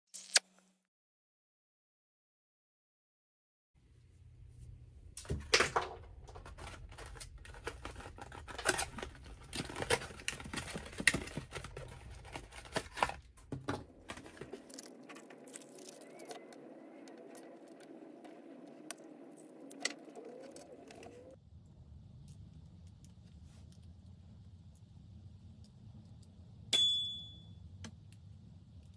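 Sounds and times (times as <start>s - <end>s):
foil and cardboard crinkling: 5.3s - 16.4s.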